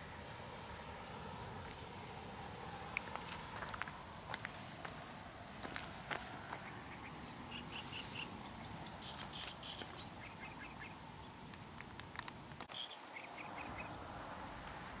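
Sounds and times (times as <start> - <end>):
faint outdoor hiss: 0.0 - 15.0
birds chirping: 1.5 - 14.6.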